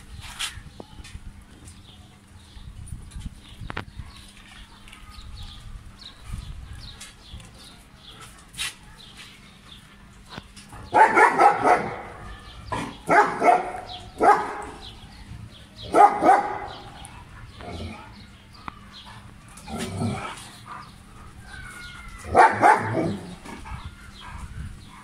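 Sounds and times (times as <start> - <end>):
dogs barking: 10.7 - 15.0, 15.8 - 25.0.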